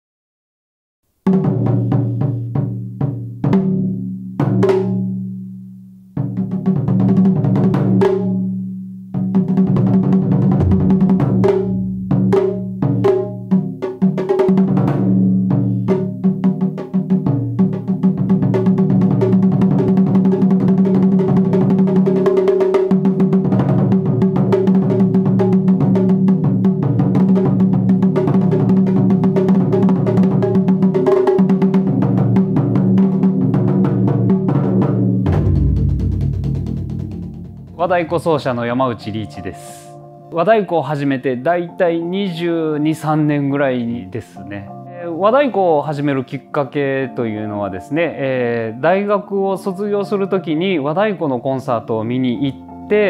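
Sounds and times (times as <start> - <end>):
taiko drums struck with sticks: 9.2 - 15.2, 16.0 - 38.4.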